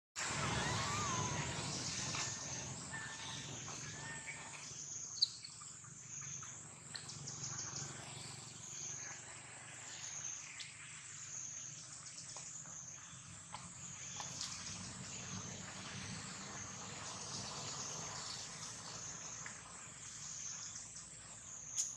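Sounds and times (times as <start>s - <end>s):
insect drone: 0.2s - 21.9s.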